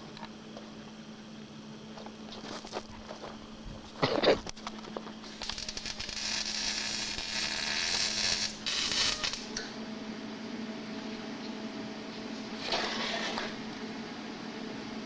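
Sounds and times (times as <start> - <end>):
welding arc crackling and hissing: 2.0 - 9.8.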